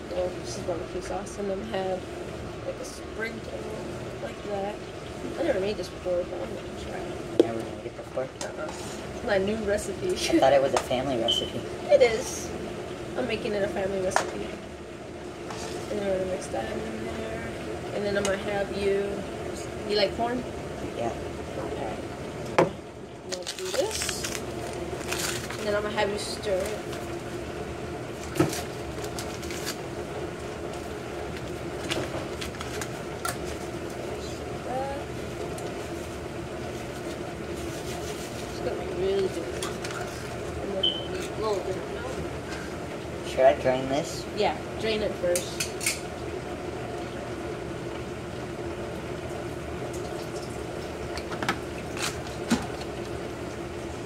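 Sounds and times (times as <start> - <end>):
kitchen hum: 0.0 - 54.0
paper packet rustling and tearing: 23.3 - 25.8, 28.2 - 29.8, 31.4 - 33.7.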